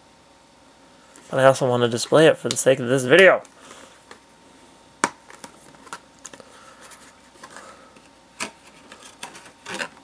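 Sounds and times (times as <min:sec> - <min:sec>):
cardboard rubbing and scraping: 0:08.4 - 0:10.0.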